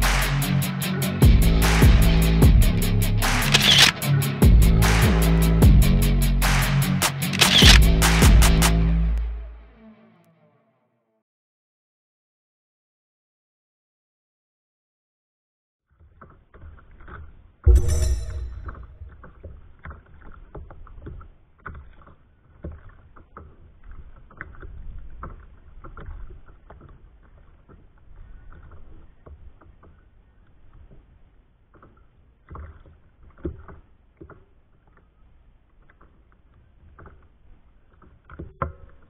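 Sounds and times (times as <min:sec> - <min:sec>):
loud hit: 0:17.7 - 0:19.4
water lapping against hull: 0:19.7 - 0:35.2
small knocks and clicks: 0:31.7 - 0:39.0.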